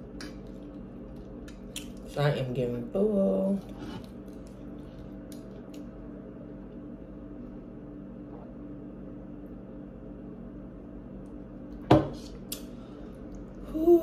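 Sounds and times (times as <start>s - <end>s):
low room tone hum: 0.0s - 14.0s.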